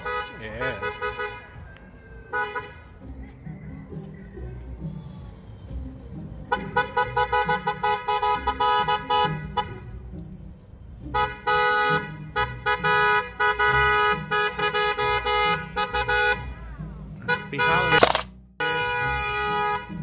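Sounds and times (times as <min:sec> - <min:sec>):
car horns honking: 0:00.0 - 0:01.7, 0:02.3 - 0:02.9, 0:06.5 - 0:09.8, 0:11.1 - 0:16.5, 0:17.2 - 0:20.0.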